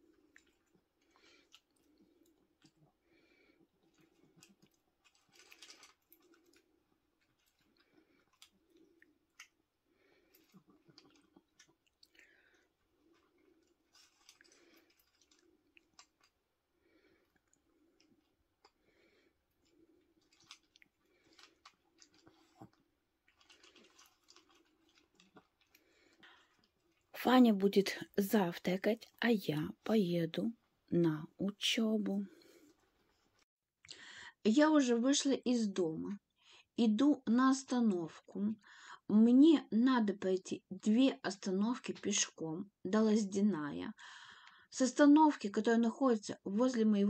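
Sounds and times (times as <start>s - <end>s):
dog chewing dry kibble: 19.7s - 27.1s.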